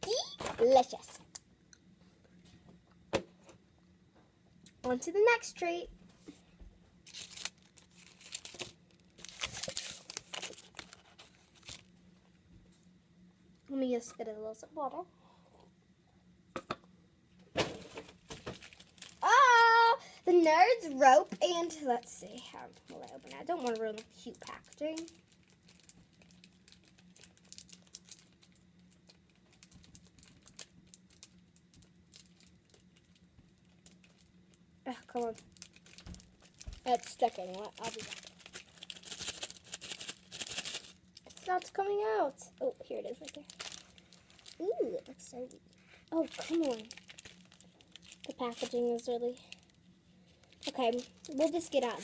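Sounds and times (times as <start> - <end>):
candy wrapper crinkling: 7.0 - 12.0, 18.2 - 52.0.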